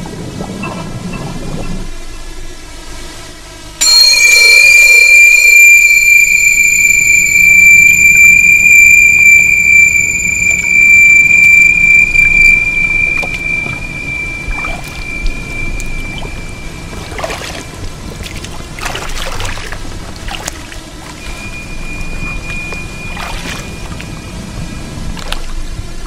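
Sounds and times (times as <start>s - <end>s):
high-pitched squeal: 3.8s - 17.7s.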